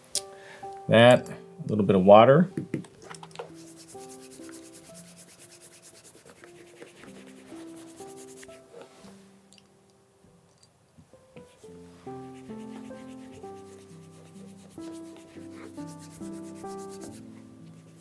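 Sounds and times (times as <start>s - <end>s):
quiet background music: 0.0s - 18.0s
cloth swishing on shoe leather: 3.6s - 9.2s.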